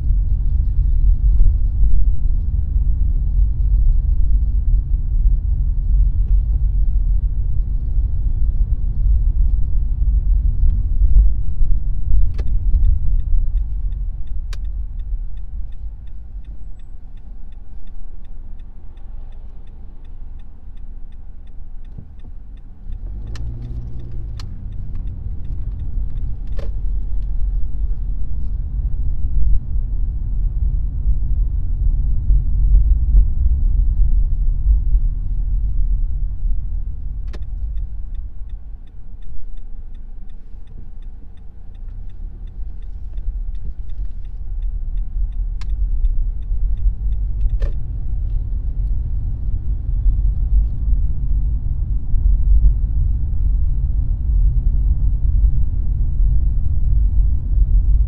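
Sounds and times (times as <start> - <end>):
car engine and road noise: 0.0 - 58.0
light regular ticking: 8.9 - 28.4, 36.6 - 50.6.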